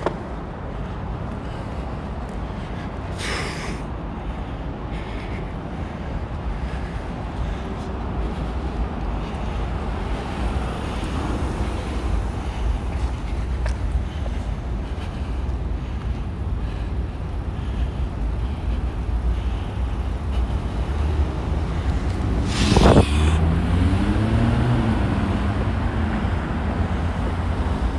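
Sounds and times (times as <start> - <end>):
skateboard wheels rolling on asphalt: 0.0 - 27.9
traffic: 0.0 - 27.9
vehicle engine accelerating: 20.8 - 27.9.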